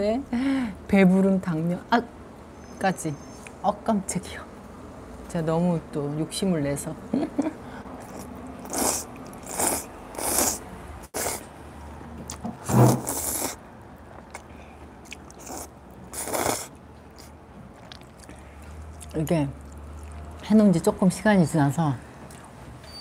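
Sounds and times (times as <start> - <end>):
quiet chewing: 8.0 - 11.4, 12.2 - 20.5, 22.2 - 22.5
noodle slurping: 8.0 - 11.5, 12.6 - 13.6, 14.3 - 18.1.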